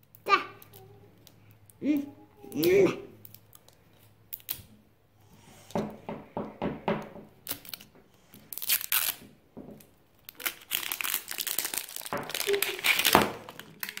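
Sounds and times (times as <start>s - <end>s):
wrapping being torn: 7.4s - 9.2s, 10.2s - 14.0s.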